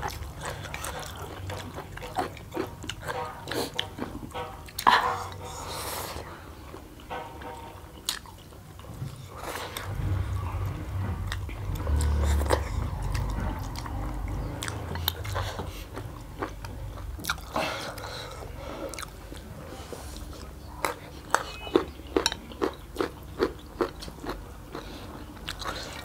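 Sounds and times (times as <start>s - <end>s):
low rumble: 9.8s - 17.2s.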